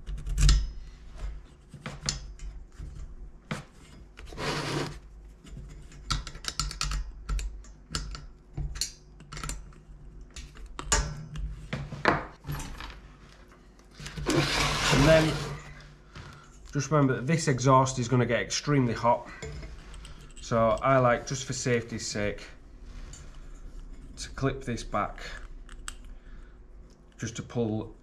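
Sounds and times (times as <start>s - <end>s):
scraping rub: 3.6s - 5.6s, 14.0s - 16.4s
clicks and knocks of parts handled: 5.3s - 14.2s, 25.4s - 26.2s.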